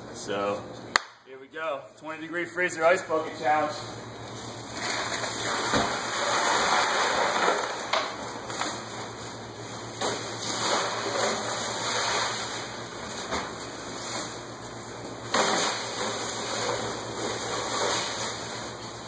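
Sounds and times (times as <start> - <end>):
ice cubes pouring into plastic can: 4.8 - 8.0.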